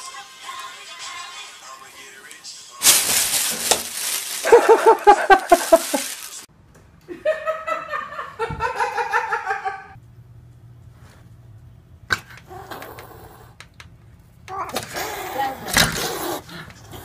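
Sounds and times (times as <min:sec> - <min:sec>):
plastic bag rustling and crackling: 0:02.8 - 0:06.5
person laughing: 0:04.3 - 0:06.4, 0:07.1 - 0:10.0.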